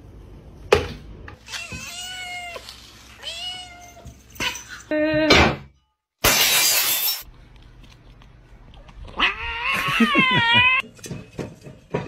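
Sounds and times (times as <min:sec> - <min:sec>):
cat yowling: 0:09.2 - 0:10.8.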